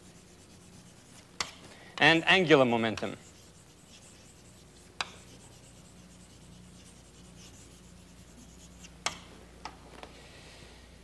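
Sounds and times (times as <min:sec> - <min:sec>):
chalk scratching on blackboard: 0:00.0 - 0:01.4, 0:02.9 - 0:09.2
chalk tapping: 0:00.0 - 0:01.6, 0:02.9 - 0:09.3.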